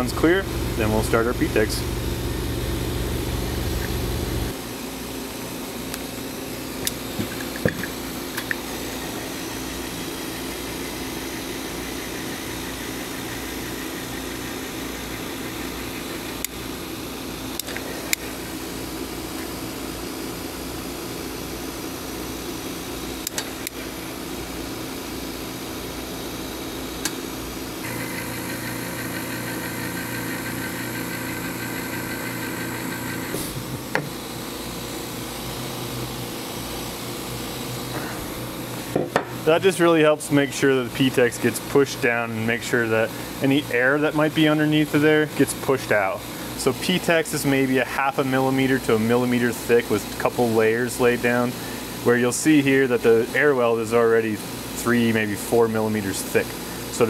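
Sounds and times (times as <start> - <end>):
extruder gun motor hum: 0.0 - 4.6, 27.8 - 34.3.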